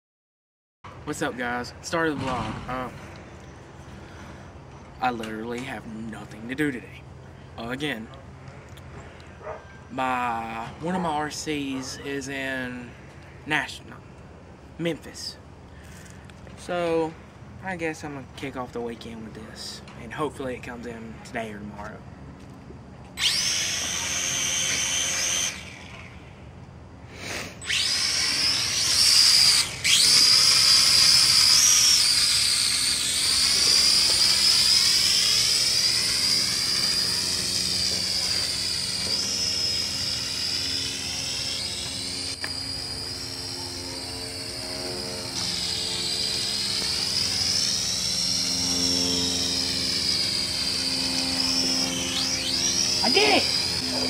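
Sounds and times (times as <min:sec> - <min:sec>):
toy drone motors whining: 0:10.0 - 0:13.8, 0:14.9 - 0:16.8, 0:23.0 - 0:54.0.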